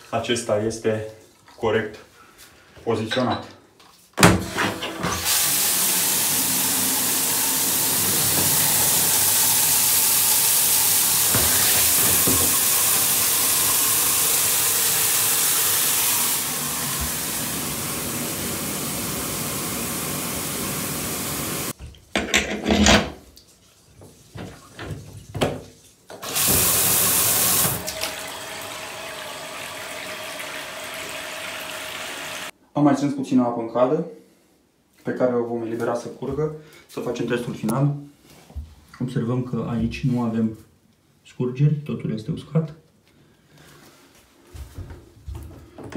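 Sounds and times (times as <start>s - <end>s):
tap water running into tub: 4.2s - 22.3s, 23.3s - 32.5s
water spraying from shower head: 5.2s - 21.8s, 26.2s - 28.6s
knocks and handling: 21.8s - 23.3s.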